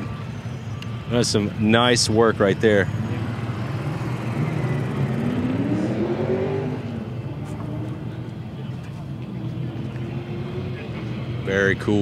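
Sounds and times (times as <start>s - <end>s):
vehicle engine accelerating: 2.4s - 12.0s.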